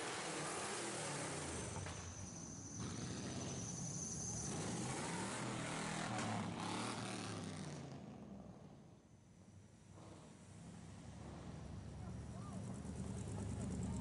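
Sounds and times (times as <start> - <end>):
car engines rumbling past: 0.0 - 9.0, 9.8 - 14.0.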